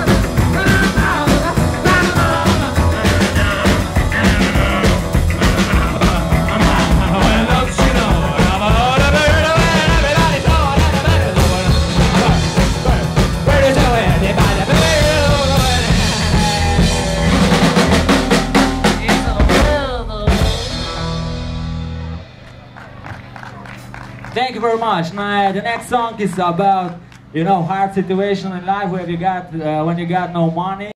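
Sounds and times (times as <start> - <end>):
drum kit: 0.0 - 24.4
electric guitar: 0.0 - 24.4
upright bass: 0.0 - 30.9.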